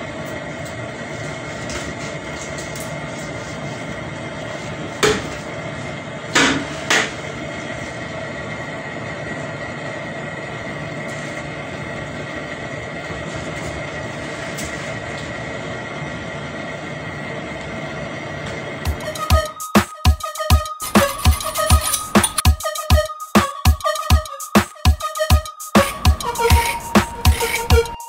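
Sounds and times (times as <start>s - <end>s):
steady hum: 0.0s - 28.0s
knife cutting yam: 25.9s - 27.9s.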